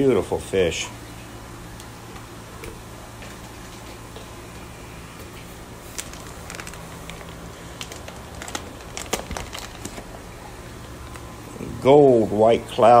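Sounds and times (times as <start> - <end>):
low steady hum: 0.0 - 13.0
plastic bag crinkling: 5.8 - 10.2.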